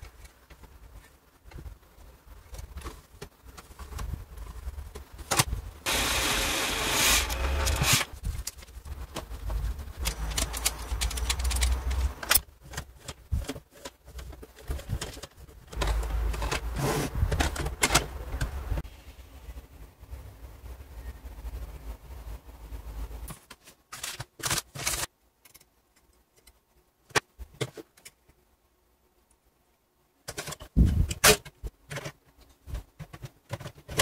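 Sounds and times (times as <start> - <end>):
plastic and metal clicks and rattles: 7.2 - 18.6.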